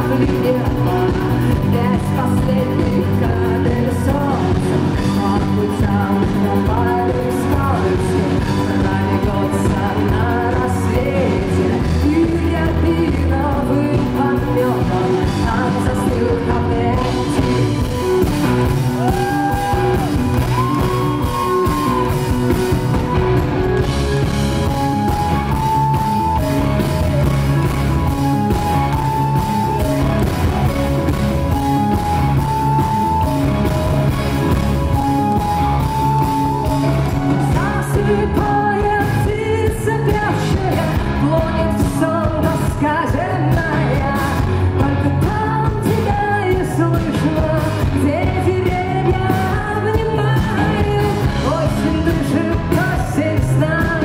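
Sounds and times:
woman singing: 0:00.0 - 0:22.8, 0:34.9 - 0:54.0
live rock band playing: 0:00.0 - 0:54.0.

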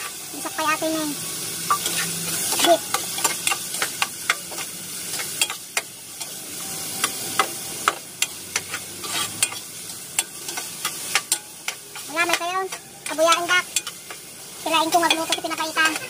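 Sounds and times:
vegetables sizzling in a pot: 0:00.0 - 0:16.0
utensil scraping a pot: 0:08.7 - 0:09.6.

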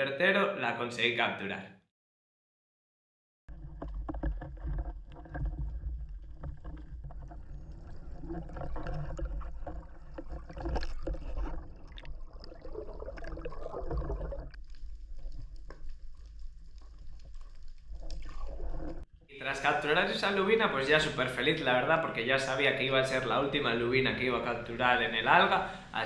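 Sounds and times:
underwater rumble: 0:03.5 - 0:19.1.

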